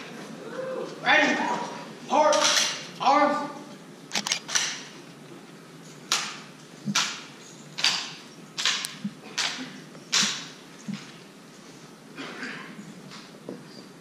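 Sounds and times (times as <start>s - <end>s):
hands slapping drill rifles: 6.1s - 11.2s.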